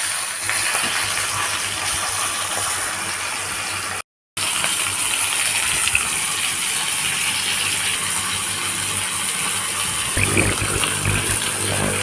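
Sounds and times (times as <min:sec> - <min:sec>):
fish sizzling in a pan: 0:00.0 - 0:10.2
low hum: 0:10.2 - 0:12.0.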